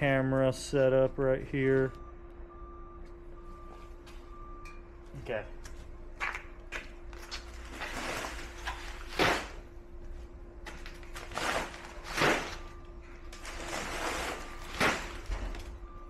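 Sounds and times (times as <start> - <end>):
faint steady hum: 0.0 - 16.0
rock sacks thudding into steel bucket: 11.2 - 12.7, 13.5 - 15.6.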